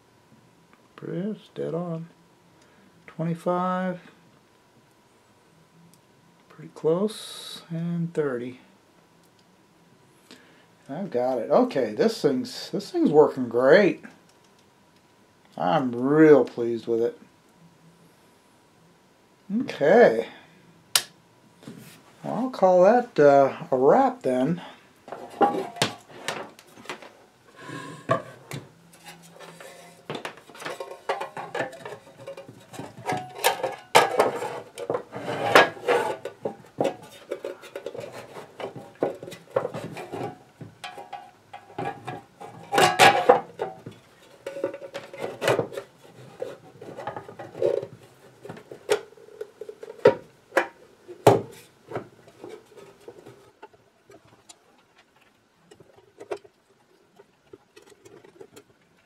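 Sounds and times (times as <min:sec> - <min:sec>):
hard objects clattering on workbench: 0:25.1 - 0:54.3.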